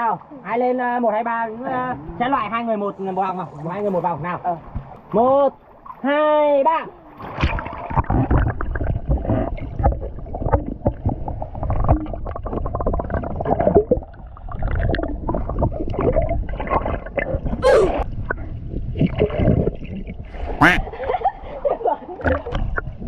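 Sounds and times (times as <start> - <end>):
pool water sloshing and splashing: 1.4 - 23.0
person crying out: 17.6 - 18.0.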